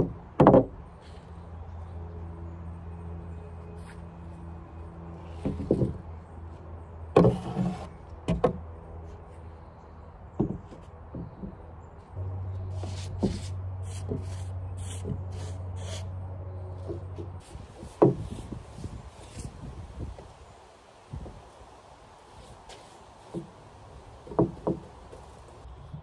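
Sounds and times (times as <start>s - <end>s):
wooden boards knocking: 0.0s - 0.8s, 7.2s - 8.6s, 10.4s - 11.6s, 17.8s - 18.4s, 24.2s - 25.2s
steady low hum: 0.0s - 20.5s.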